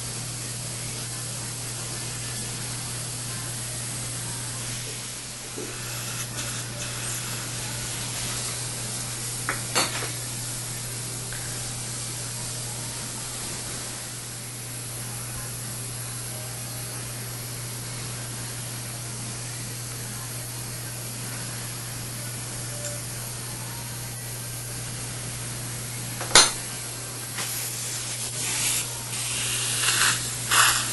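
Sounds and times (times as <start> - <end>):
steady hiss: 0.0 - 14.8, 27.2 - 30.9.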